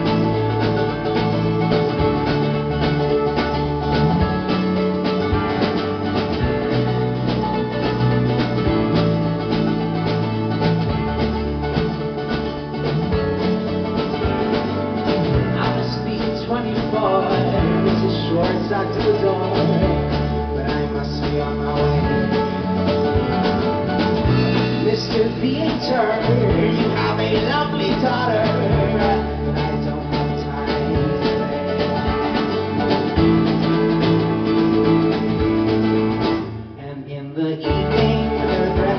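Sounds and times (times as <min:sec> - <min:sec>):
folk-rock band playing: 0:00.0 - 0:38.9
man singing: 0:15.3 - 0:23.1, 0:24.3 - 0:31.6, 0:36.8 - 0:38.9.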